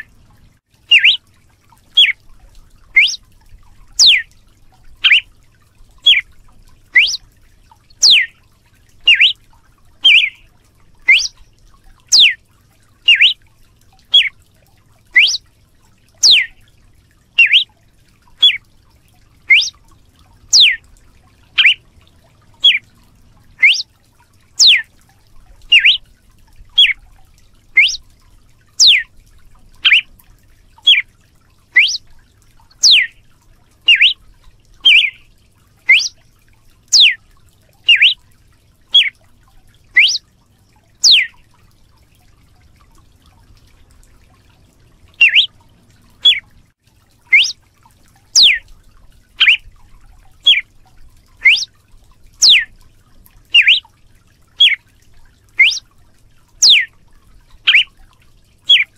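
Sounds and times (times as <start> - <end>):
bird calling: 0.9 - 1.2, 1.9 - 2.2, 3.0 - 3.2, 4.0 - 4.2, 5.0 - 5.2, 6.0 - 6.2, 7.0 - 7.2, 8.0 - 8.3, 9.0 - 9.4, 10.0 - 11.4, 12.1 - 12.4, 13.1 - 13.4, 14.1 - 14.3, 15.1 - 15.4, 16.2 - 16.6, 17.4 - 17.7, 18.4 - 18.6, 19.5 - 19.8, 20.5 - 20.8, 21.6 - 21.8, 22.6 - 22.8, 23.6 - 23.9, 24.6 - 24.9, 25.7 - 26.0, 26.8 - 27.0, 27.8 - 28.0, 28.8 - 29.1, 29.8 - 30.1, 30.8 - 31.0, 31.8 - 32.0, 32.8 - 33.2, 33.9 - 34.2, 34.8 - 35.3, 35.9 - 36.2, 36.9 - 37.2, 37.9 - 38.2, 38.9 - 39.1, 40.0 - 40.2, 41.0 - 41.4, 45.2 - 45.5, 46.2 - 46.5, 47.3 - 47.6, 48.4 - 48.6, 49.4 - 49.6, 50.4 - 50.6, 51.4 - 51.7, 52.4 - 52.7, 53.6 - 53.9, 54.6 - 54.8, 55.6 - 55.8, 56.6 - 56.9, 57.7 - 57.9, 58.7 - 58.9.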